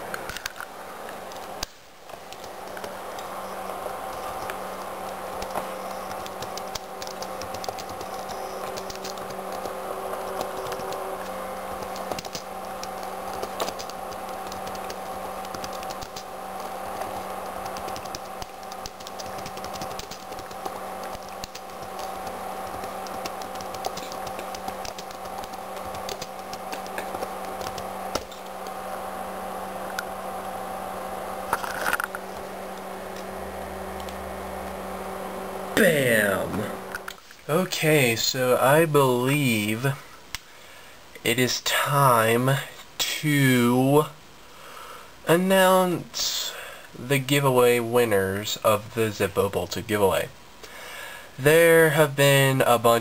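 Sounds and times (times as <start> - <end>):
steady electrical hum: 0.0 - 53.0
keyboard key clicks: 4.1 - 9.7, 11.8 - 28.8.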